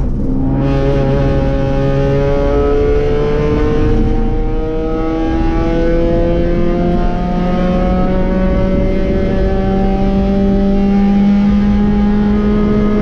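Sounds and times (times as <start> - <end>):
race car engine at full throttle: 0.0 - 13.0.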